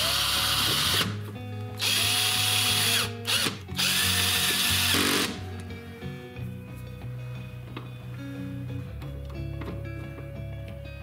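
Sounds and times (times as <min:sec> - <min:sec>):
power drill driving screws: 0:00.0 - 0:01.2, 0:01.8 - 0:05.4
background music: 0:00.0 - 0:11.0.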